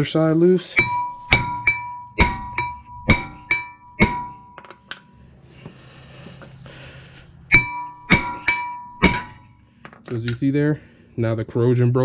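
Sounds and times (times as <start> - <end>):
hammer clanging on metal: 0.7 - 5.1, 7.5 - 9.5.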